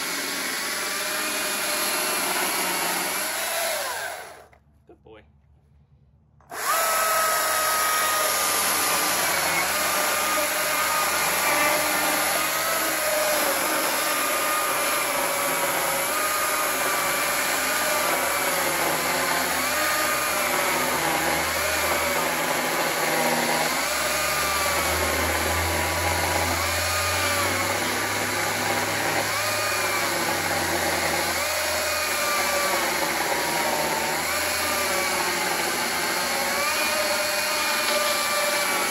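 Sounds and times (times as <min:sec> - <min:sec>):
chainsaw cutting log: 0:00.0 - 0:04.6, 0:06.4 - 0:38.9.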